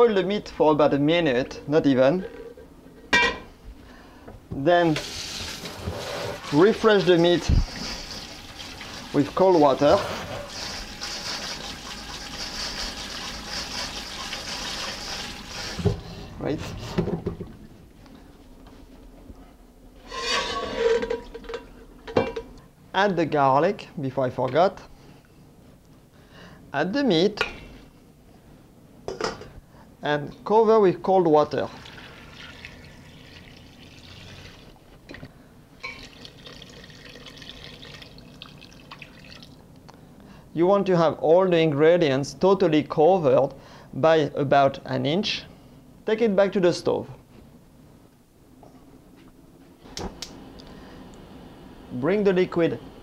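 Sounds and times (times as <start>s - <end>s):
faucet sprayer water spraying: 6.4s - 9.8s, 10.4s - 16.0s.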